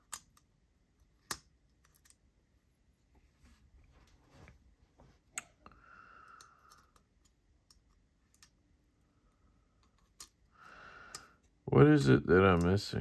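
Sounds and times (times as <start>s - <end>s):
small metal parts clicking: 6.3s - 8.6s.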